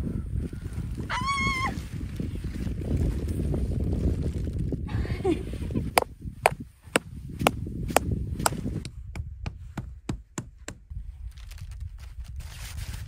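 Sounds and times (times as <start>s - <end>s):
tent stake being struck: 6.0s - 10.9s.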